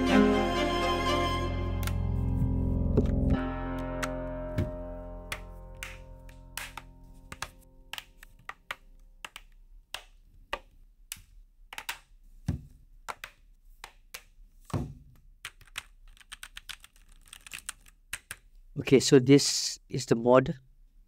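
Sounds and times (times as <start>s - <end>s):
mechanical keyboard keys clicking: 15.4s - 18.4s.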